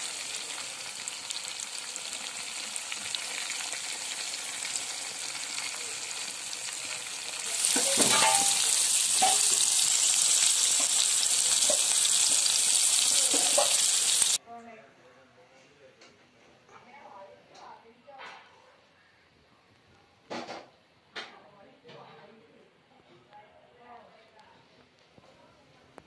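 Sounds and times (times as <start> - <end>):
chicken deep-frying in oil: 0.0 - 14.4.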